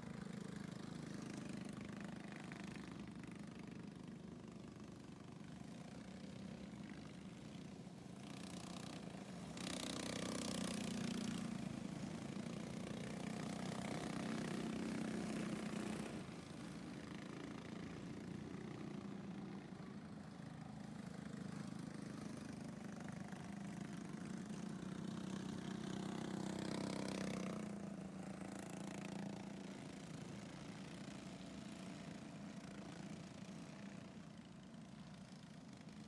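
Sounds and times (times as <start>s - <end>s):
distant small car engines: 0.0s - 36.0s.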